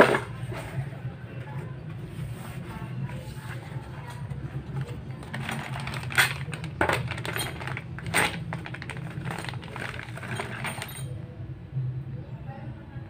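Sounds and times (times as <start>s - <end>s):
plastic bag crinkling: 4.8s - 11.1s
metal sprockets clinking: 5.3s - 11.2s.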